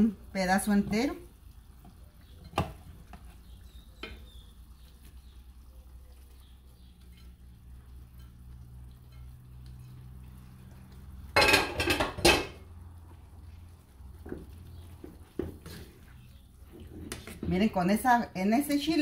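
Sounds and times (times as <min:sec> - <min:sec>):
clatter of dishes and utensils: 0:11.3 - 0:12.6.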